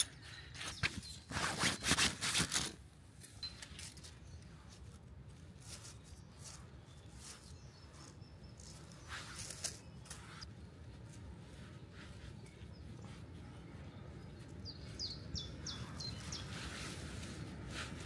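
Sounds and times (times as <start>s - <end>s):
backpack and gear rustling: 0.0s - 13.3s.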